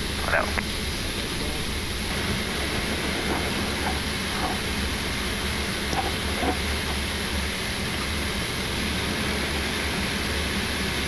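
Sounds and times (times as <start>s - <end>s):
air-conditioning hiss: 0.0s - 11.0s
constant low hum: 0.0s - 11.0s
jet engines idling: 0.0s - 11.0s.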